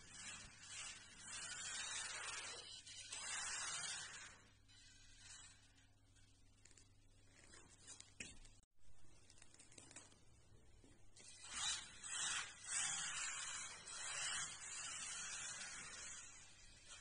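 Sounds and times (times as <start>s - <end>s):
toy car tyres rushing on floor: 0.0s - 5.8s, 11.2s - 17.0s.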